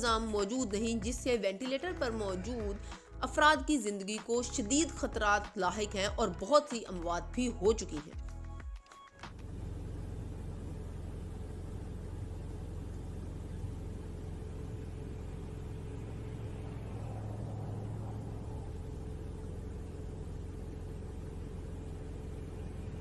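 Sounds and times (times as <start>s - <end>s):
truck engine running: 0.0s - 3.5s, 9.3s - 23.0s.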